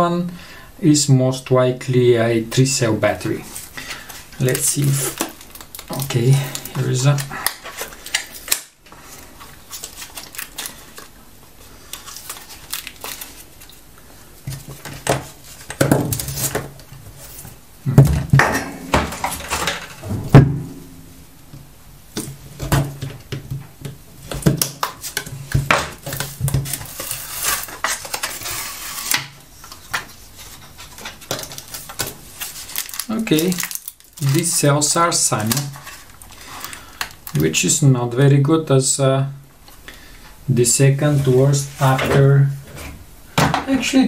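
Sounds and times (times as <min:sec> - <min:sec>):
plastic clicks and cracks: 0:04.5 - 0:08.8
louder knocks: 0:20.0 - 0:21.1.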